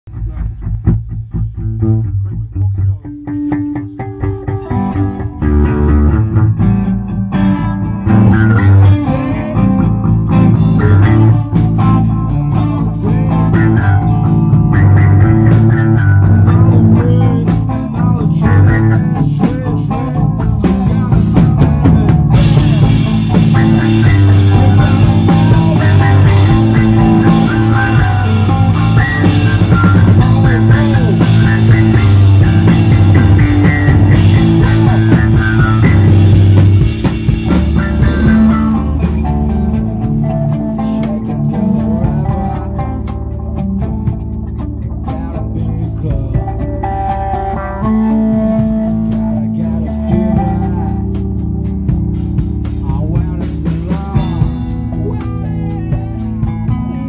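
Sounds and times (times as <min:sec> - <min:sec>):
drum kit: 0:00.1 - 0:57.0
electric guitar chords: 0:00.1 - 0:57.0.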